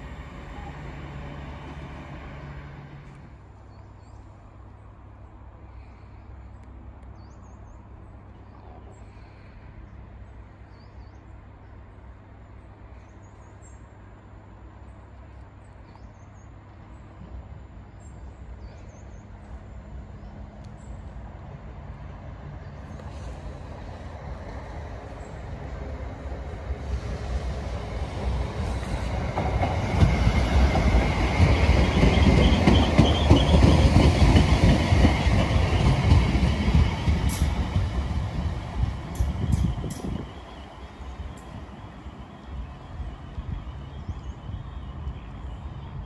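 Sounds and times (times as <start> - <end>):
electric train approaching: 0.0 - 3.4, 19.3 - 46.0.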